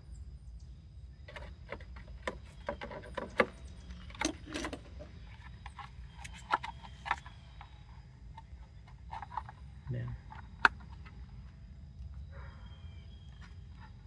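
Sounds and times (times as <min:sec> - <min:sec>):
plastic parts clicking and rattling: 0:01.3 - 0:07.7, 0:08.3 - 0:09.6.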